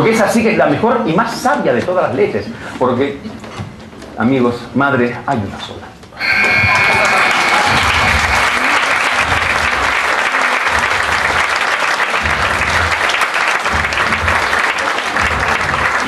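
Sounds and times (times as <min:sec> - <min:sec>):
audience applauding: 0:06.2 - 0:16.0.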